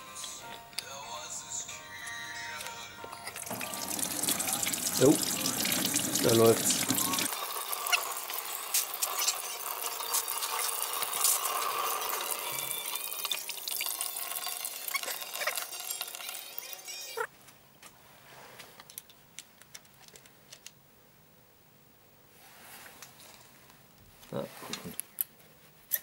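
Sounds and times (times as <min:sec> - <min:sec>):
liquid pouring into plastic bucket: 0:03.4 - 0:16.4.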